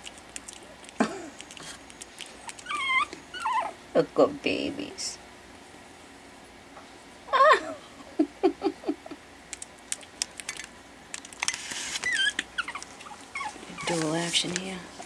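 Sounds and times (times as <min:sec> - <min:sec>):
paws clicking and scratching: 0:00.0 - 0:03.2, 0:09.5 - 0:15.0
puppies whining: 0:01.0 - 0:03.8, 0:11.4 - 0:14.5
puppies squeaking: 0:01.4 - 0:03.8, 0:11.4 - 0:14.5.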